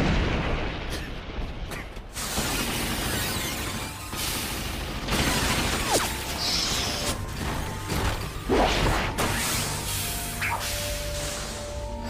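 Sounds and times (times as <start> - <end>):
background music: 3.5 - 12.0.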